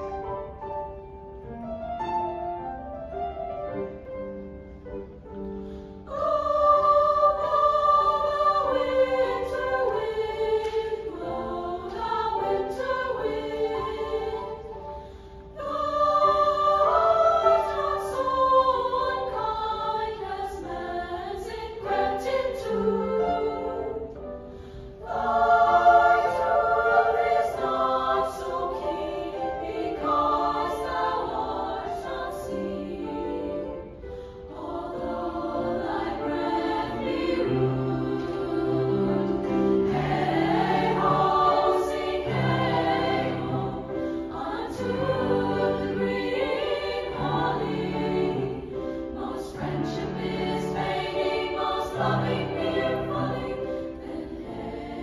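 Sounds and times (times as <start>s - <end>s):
girls choir singing: 5.0s - 55.0s.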